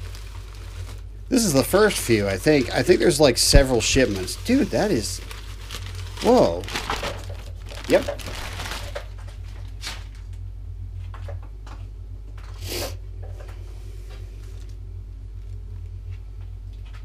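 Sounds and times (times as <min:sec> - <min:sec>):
plastic crinkling: 0:00.0 - 0:10.4
furnace blower humming: 0:00.0 - 0:17.0.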